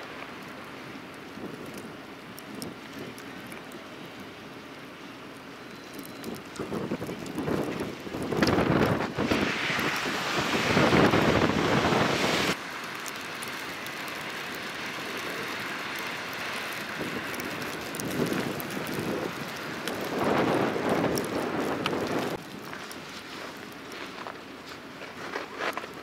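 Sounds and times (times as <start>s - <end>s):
wind buffeting microphone: 6.2s - 12.6s, 16.8s - 22.4s
tyres splashing through water: 8.3s - 21.6s.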